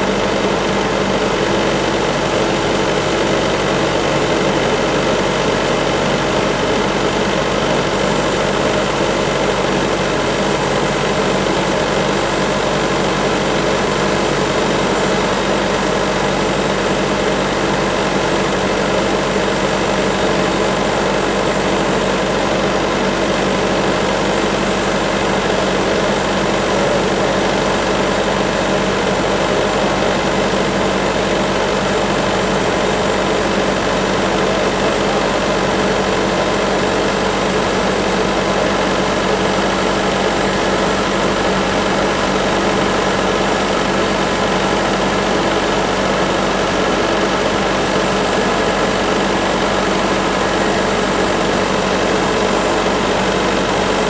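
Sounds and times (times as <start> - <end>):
sawmill power unit drone: 0.0 - 54.0.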